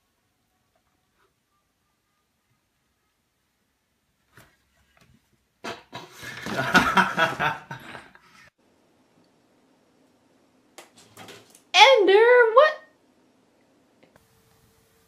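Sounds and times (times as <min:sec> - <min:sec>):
person laughing: 0:06.2 - 0:08.2.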